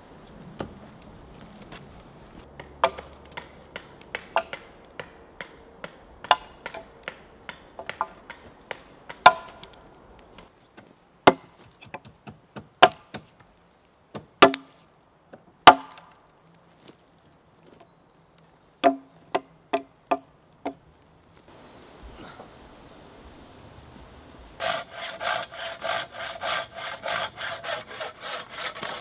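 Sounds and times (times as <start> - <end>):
axe chopping log: 2.6 - 9.7, 11.2 - 13.4, 14.1 - 14.8, 15.6 - 16.2.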